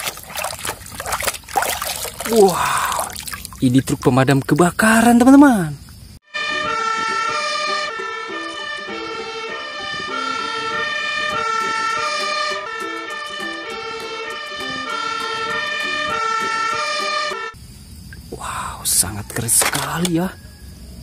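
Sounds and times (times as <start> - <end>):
fire engine two-tone siren: 6.3 - 17.6.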